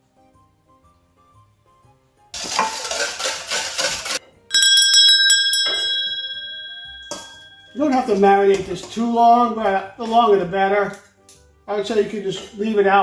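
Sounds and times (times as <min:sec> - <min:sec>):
small bell ringing rapidly: 0:04.5 - 0:08.2.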